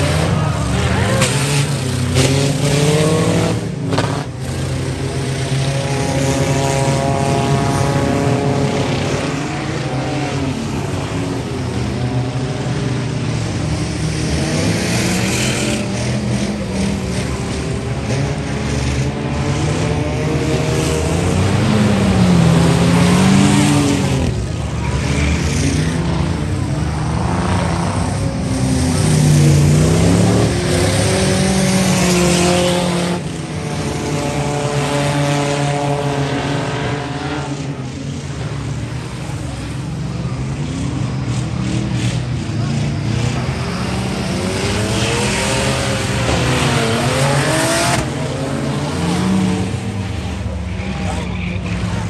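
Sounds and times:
race car engines revving: 0.0s - 52.0s.

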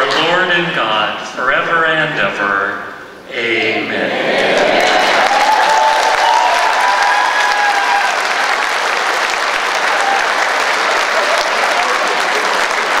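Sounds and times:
large audience applauding: 4.4s - 13.0s.

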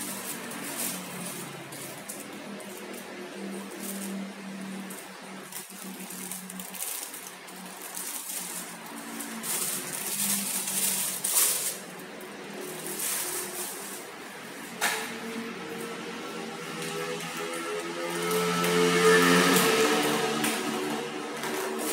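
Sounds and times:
plastic wrapping crinkling: 0.0s - 21.9s.

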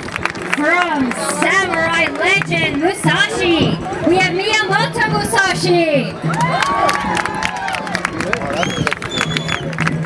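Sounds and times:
scattered clapping: 0.0s - 4.0s, 6.2s - 10.0s
audience cheering: 6.2s - 9.9s.

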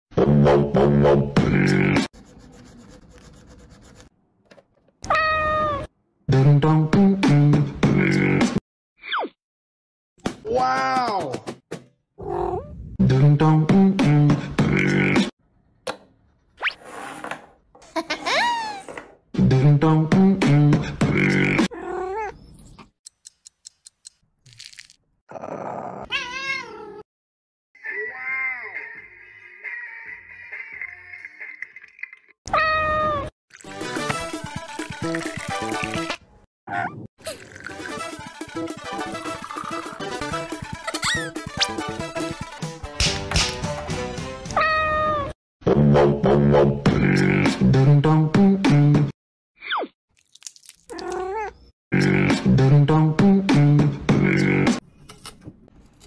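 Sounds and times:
cat meowing: 5.1s - 5.9s, 26.0s - 27.0s, 27.8s - 31.0s, 50.9s - 51.6s.

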